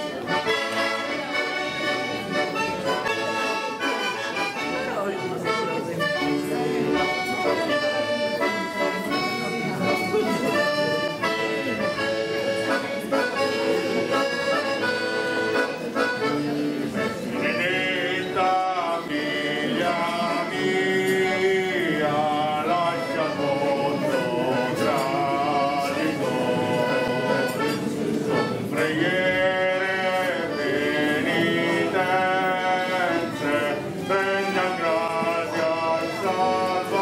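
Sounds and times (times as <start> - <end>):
button accordion playing folk tune: 0.0 - 37.0
voices singing along: 17.4 - 27.4, 28.6 - 37.0.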